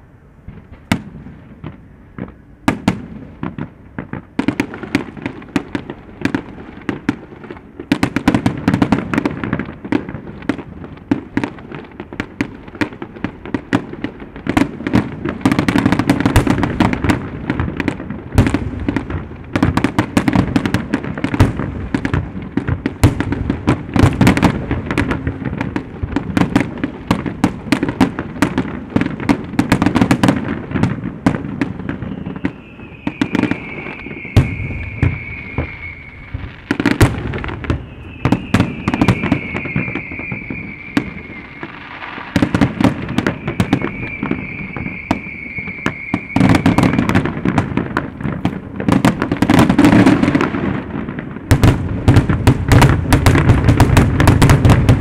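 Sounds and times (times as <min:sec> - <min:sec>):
firework bursts and crackles: 0:00.0 - 0:55.0
high falling firework whistles: 0:27.7 - 0:48.2.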